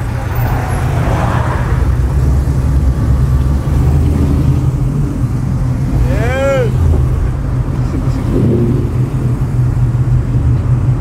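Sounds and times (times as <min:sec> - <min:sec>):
car exhaust drone from inside: 0:00.0 - 0:11.0
car passing close: 0:00.0 - 0:11.0.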